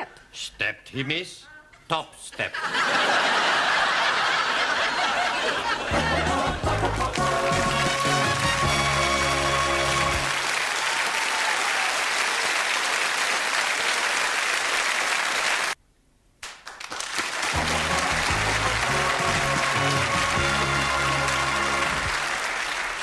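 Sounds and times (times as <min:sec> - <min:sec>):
sitcom theme music: 0:05.8 - 0:10.4, 0:17.5 - 0:22.4
studio audience applauding: 0:05.8 - 0:15.8, 0:16.4 - 0:23.0.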